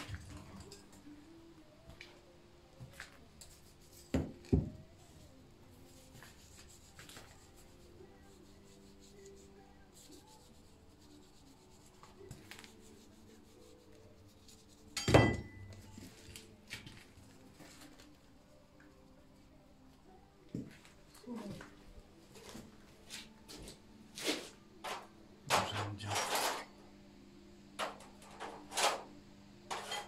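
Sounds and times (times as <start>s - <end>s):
metallic clank ringing: 15.0s - 15.7s.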